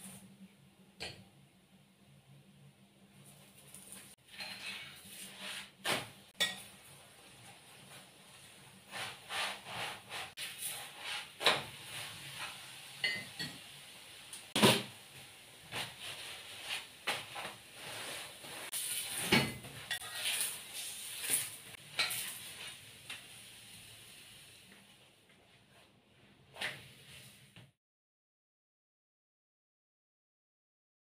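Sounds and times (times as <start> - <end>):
metal spoon scraping a pan: 4.2 - 6.8, 15.7 - 22.9
hot oil sizzling: 6.4 - 25.0.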